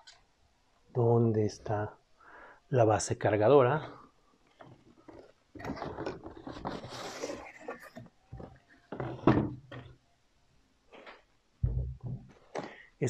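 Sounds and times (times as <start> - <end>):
cardboard scraping and rustling: 5.2 - 8.0.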